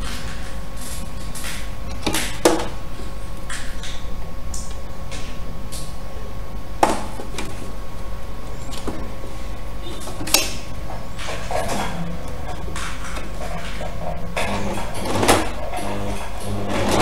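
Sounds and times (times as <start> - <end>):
electric sewing machine stitching: 13.3 - 17.0.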